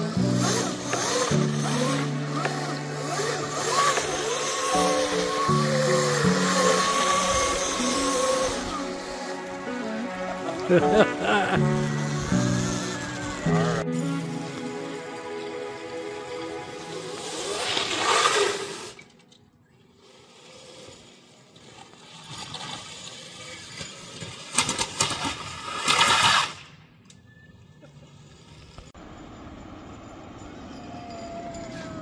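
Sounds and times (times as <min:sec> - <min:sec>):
go-kart tyres hissing through water: 0:00.0 - 0:19.0, 0:20.1 - 0:26.7
quiet road noise: 0:25.7 - 0:32.0.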